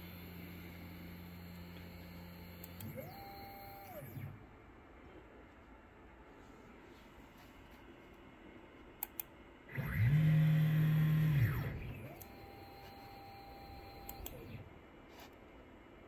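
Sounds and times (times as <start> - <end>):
motors whining: 9.7 - 14.7.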